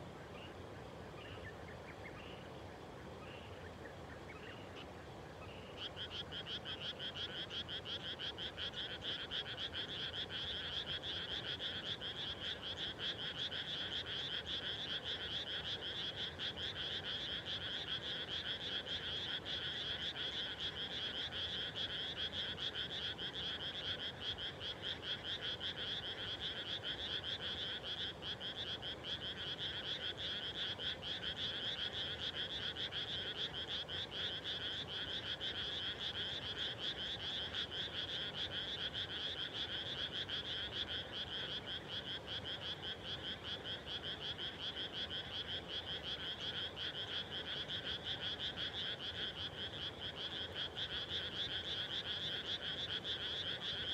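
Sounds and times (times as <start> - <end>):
frogs chorus: 0.0 - 53.9.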